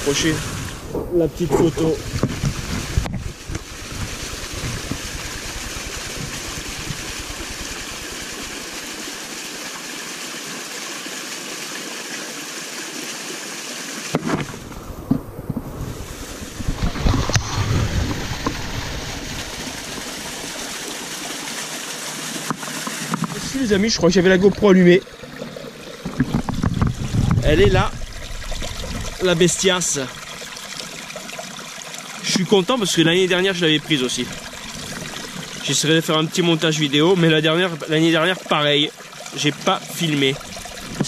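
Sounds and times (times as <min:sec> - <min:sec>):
stream rushing over rocks: 0:00.0 - 0:41.0
knocks and rustles: 0:26.0 - 0:27.4.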